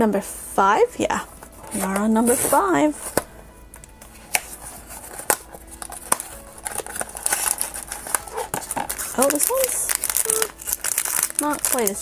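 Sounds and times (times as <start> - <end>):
card and packaging rustling: 1.4 - 12.0
cardboard flap snapping: 4.3 - 11.8.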